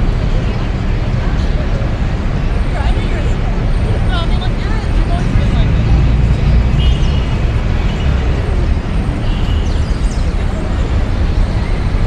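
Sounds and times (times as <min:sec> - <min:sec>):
city street traffic rumble: 0:00.0 - 0:12.0
faint voices: 0:00.0 - 0:12.0.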